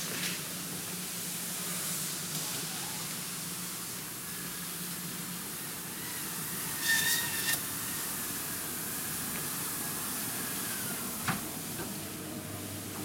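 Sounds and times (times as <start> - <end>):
high squeak: 6.8 - 7.6.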